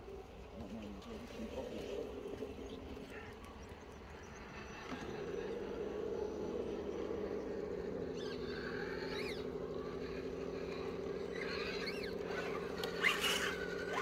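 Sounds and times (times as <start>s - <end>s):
electric motor whining: 4.4s - 14.0s.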